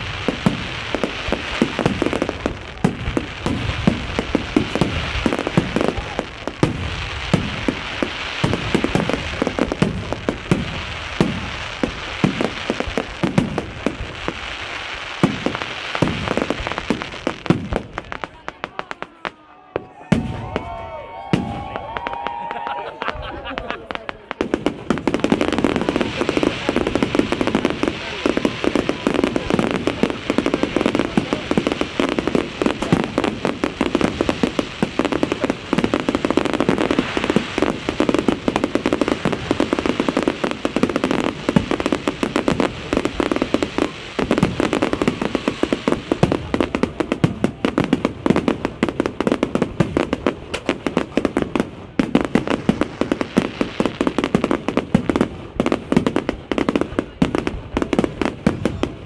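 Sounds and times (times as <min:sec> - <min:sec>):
fireworks popping and crackling: 0:00.0 - 0:59.0.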